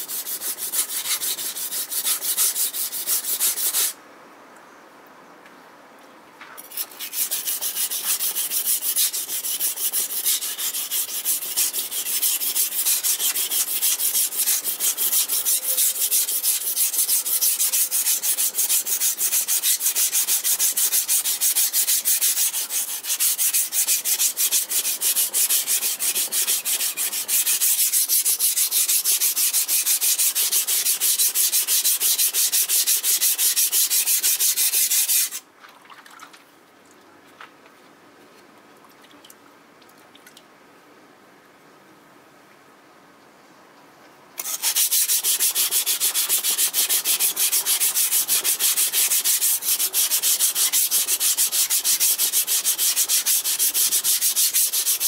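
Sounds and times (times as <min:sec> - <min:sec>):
knife scraping on whetstone: 0:06.6 - 0:35.4, 0:44.4 - 0:55.0.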